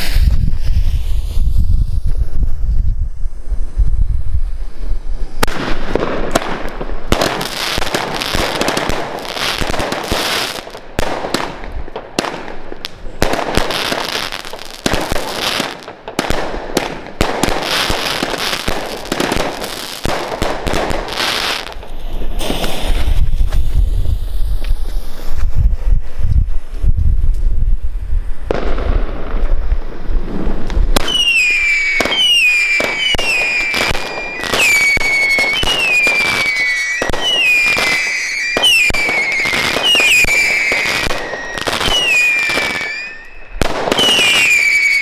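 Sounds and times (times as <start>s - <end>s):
wind rumble on microphone: 0.0s - 7.3s, 21.8s - 31.1s
fireworks shots and bursts: 0.0s - 26.9s, 27.5s - 45.0s.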